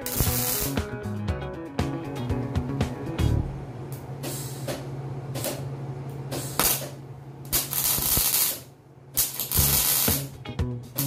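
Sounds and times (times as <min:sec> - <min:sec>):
welding arc crackling and sizzling: 0:00.0 - 0:00.9, 0:06.4 - 0:10.4.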